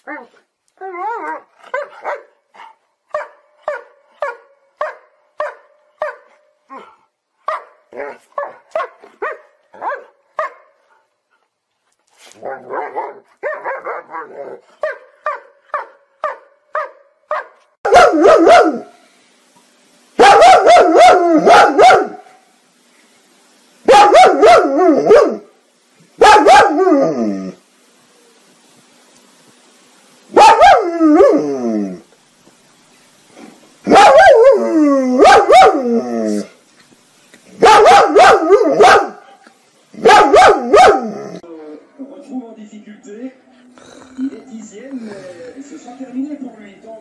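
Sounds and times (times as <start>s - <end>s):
dog barking: 1.7s - 2.4s, 3.1s - 10.8s, 12.5s - 18.9s, 20.2s - 22.3s, 23.9s - 25.5s, 26.2s - 27.0s, 30.3s - 31.3s, 33.9s - 34.6s, 35.2s - 35.9s, 37.6s - 39.4s, 40.0s - 41.3s.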